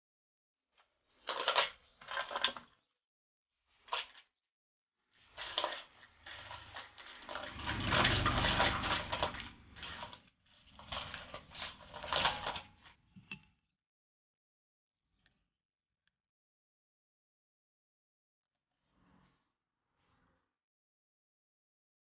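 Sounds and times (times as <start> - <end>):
wet squelching: 5.3 - 12.6
shells scraping steel bowl: 5.3 - 12.9.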